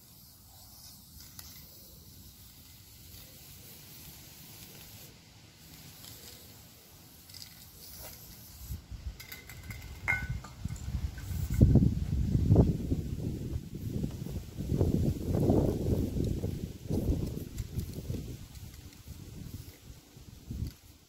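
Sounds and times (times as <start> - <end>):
aerosol spray can hissing: 0.0 - 8.8
wind rumbling on microphone: 8.8 - 21.0
light clinks: 9.2 - 11.7.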